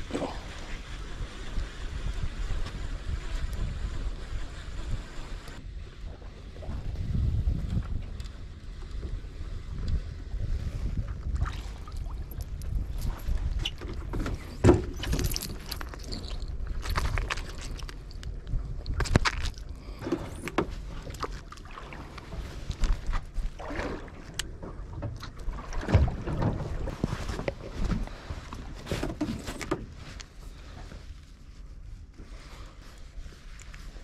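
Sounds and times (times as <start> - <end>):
wind rumbling on microphone: 0.0 - 34.0
water against boat hull: 0.1 - 34.0
knocks and rustles of handling: 12.3 - 21.6, 25.8 - 34.0.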